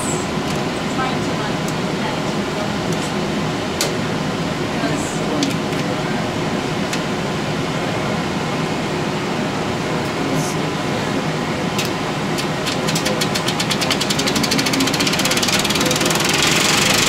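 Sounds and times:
fans whirring: 0.0 - 17.0
projector clicks: 11.8 - 17.0
projector mechanical ticking: 11.8 - 17.0.

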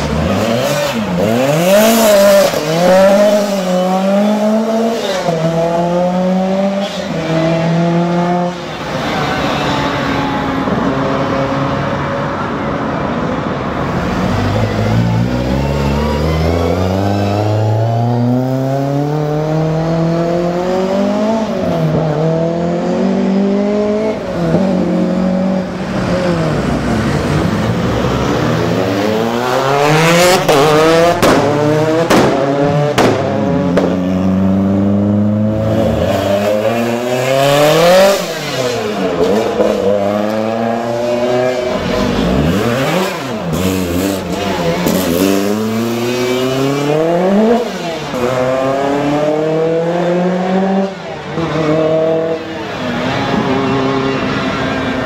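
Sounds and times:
rally car engines accelerating: 0.0 - 55.0
exhaust bangs: 29.7 - 34.5.

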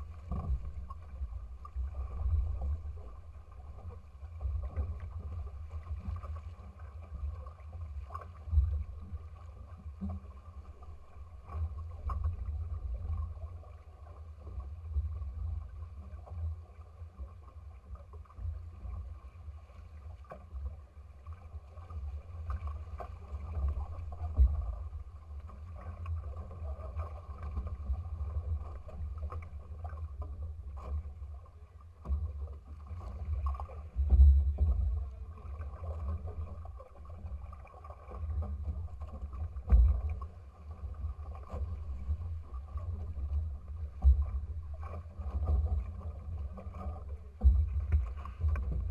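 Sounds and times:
water splashing along hulls: 0.0 - 48.9
low rumble: 22.4 - 48.9.

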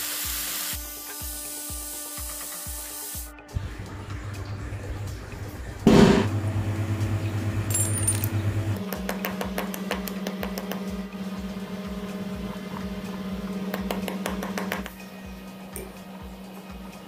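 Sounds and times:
background music: 0.2 - 17.0
blade clinking on ball bearings: 7.7 - 8.3.

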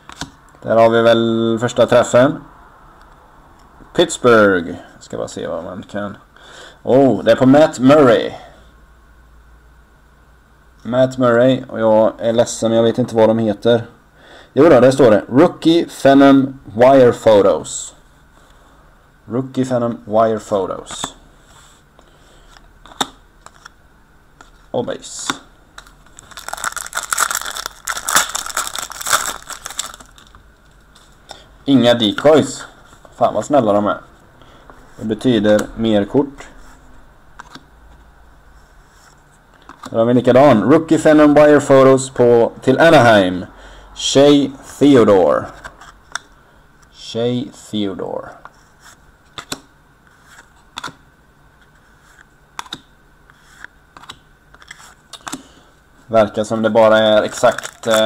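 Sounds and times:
foil wrapper crinkling: 25.8 - 30.8, 57.2 - 58.0.

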